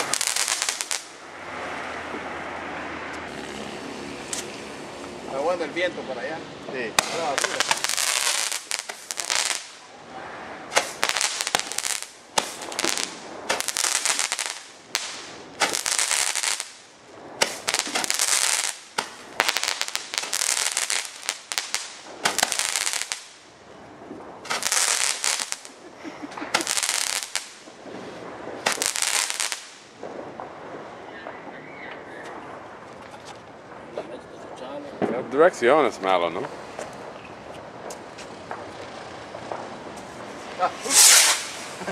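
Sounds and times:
firework bangs: 0:00.0 - 0:41.9
firework crackling: 0:00.0 - 0:41.9.

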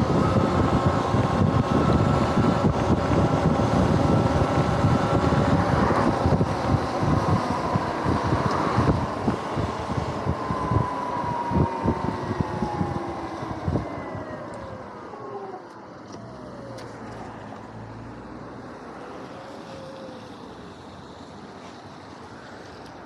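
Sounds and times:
wind buffeting microphone: 0:00.0 - 0:15.6
electric motorbike motor whine: 0:00.0 - 0:18.0.

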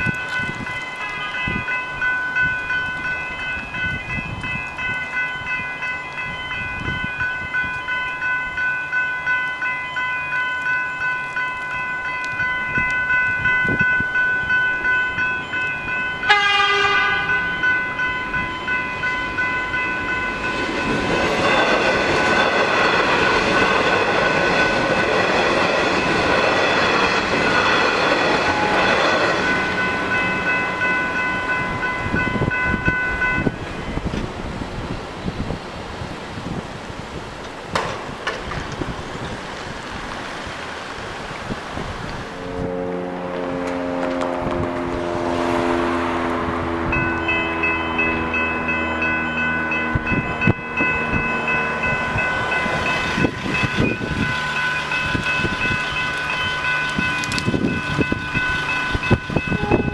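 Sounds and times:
level crossing bells ringing: 0:00.0 - 0:34.2, 0:46.5 - 0:59.9
train rushing past: 0:12.4 - 0:59.9
train horn blast: 0:16.2 - 0:17.5, 0:28.3 - 0:29.0, 0:42.3 - 0:52.4, 0:54.4 - 0:59.9.

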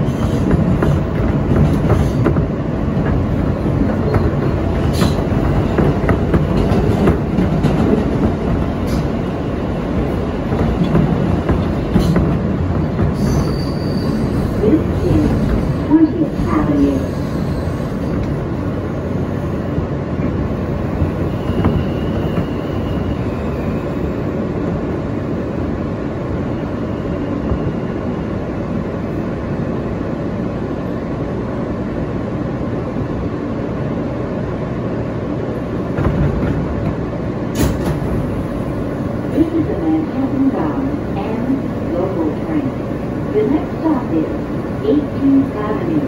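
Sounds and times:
wheels rumbling on rail: 0:00.0 - 0:46.0
faint high wheel squeal: 0:13.2 - 0:14.6, 0:21.2 - 0:23.9.

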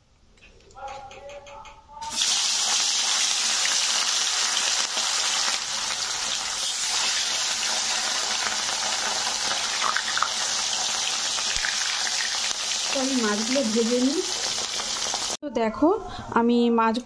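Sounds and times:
fish frying in oil: 0:02.1 - 0:15.4.

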